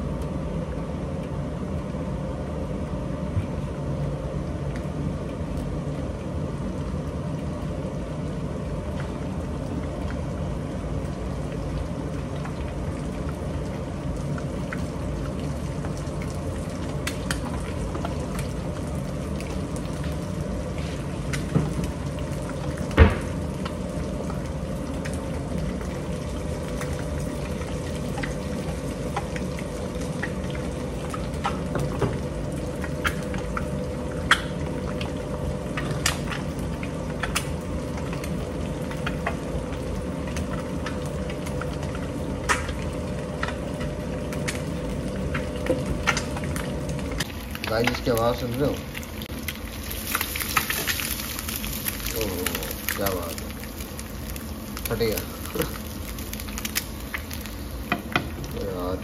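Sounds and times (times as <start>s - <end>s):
omelette frying hiss: 35.7s - 59.0s.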